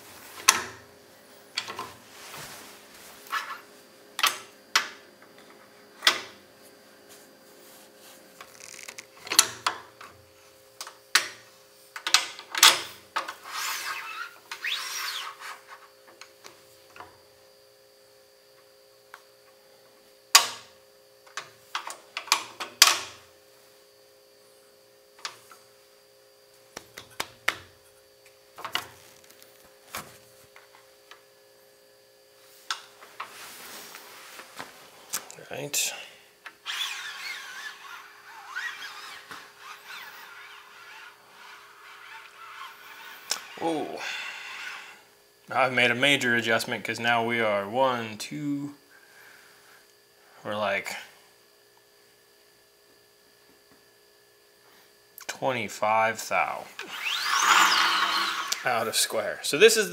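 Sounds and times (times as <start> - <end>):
faint steady hum: 0.0 - 59.9
sliding rub on metal: 13.4 - 15.7, 36.7 - 45.0.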